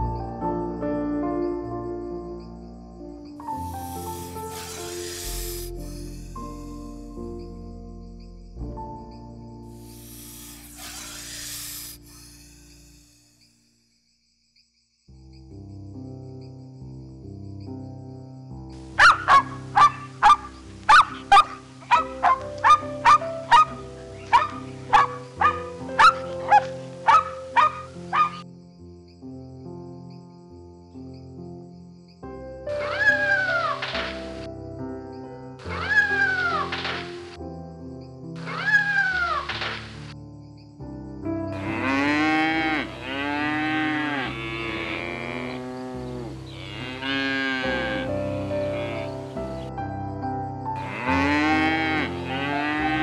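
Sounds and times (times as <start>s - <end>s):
soft background music: 0.0s - 13.5s, 15.3s - 53.0s
dog barking: 19.0s - 28.4s
cattle mooing: 41.6s - 49.3s, 50.8s - 53.0s.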